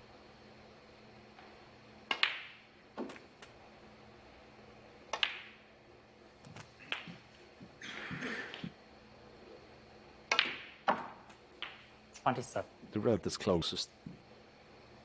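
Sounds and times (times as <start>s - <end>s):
snooker balls clicking: 2.1s - 3.6s, 5.1s - 5.6s, 6.4s - 8.7s, 10.3s - 11.9s.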